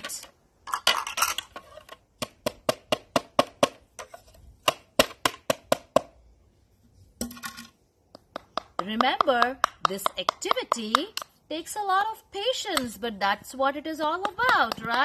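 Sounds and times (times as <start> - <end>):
pestle tapping in bowl: 8.1 - 11.3, 14.2 - 15.0.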